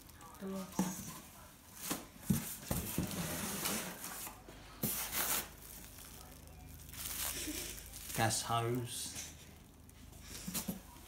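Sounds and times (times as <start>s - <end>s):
plastic wrapping crinkling: 2.7s - 11.0s.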